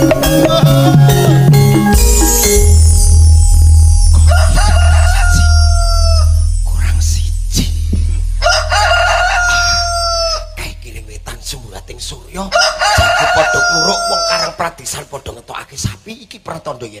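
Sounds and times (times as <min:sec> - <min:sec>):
man imitating rooster crow: 0:04.2 - 0:06.5, 0:08.4 - 0:10.7, 0:12.5 - 0:14.8.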